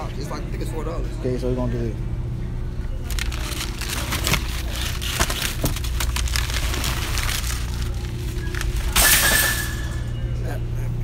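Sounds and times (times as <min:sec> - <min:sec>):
plastic wrap crackling: 0:03.0 - 0:09.0.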